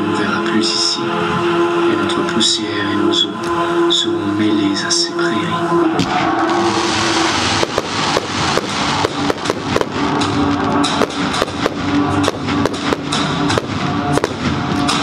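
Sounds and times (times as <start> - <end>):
music soundtrack: 0.0 - 15.0
fireworks popping and banging: 6.0 - 15.0.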